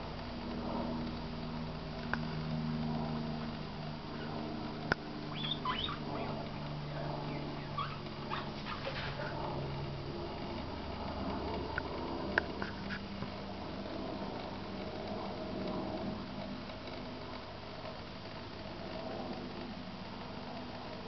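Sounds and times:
steady low hum: 0.0s - 21.0s
high-pitched animal whines: 5.3s - 6.4s, 7.2s - 9.2s.

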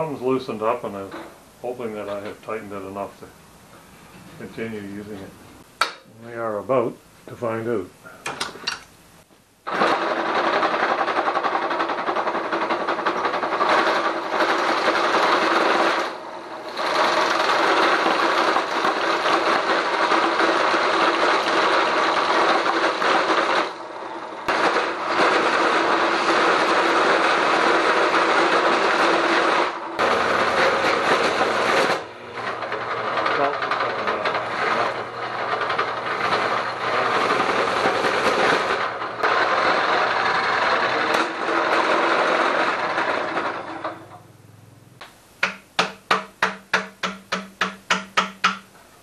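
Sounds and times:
drill press boring into wood: 9.7s - 44.2s.

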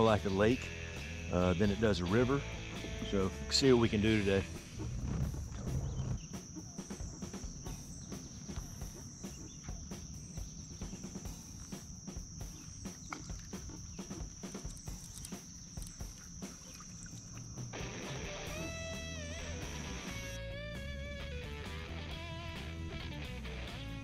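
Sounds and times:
insects chorus: 0.0s - 24.0s
fishing reel clicks and knocks: 14.6s - 16.0s.

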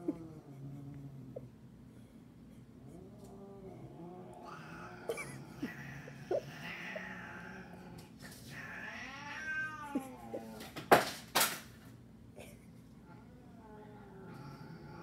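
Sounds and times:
cat meowing: 8.6s - 10.6s.

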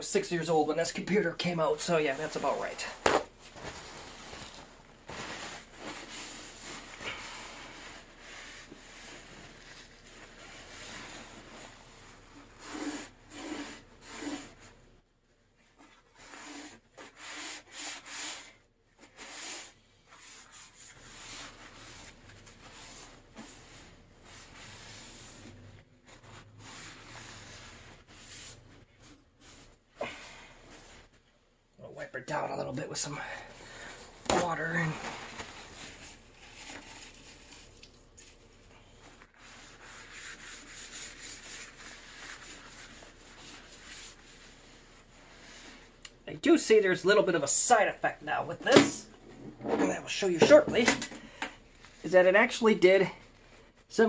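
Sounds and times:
paper towel rubbing sheet metal: 1.0s - 14.8s, 15.8s - 29.9s, 33.6s - 38.4s, 39.0s - 46.0s.

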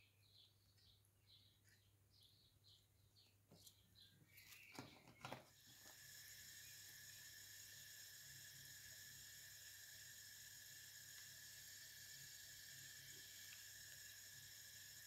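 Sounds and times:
faint steady hiss: 5.4s - 15.0s.

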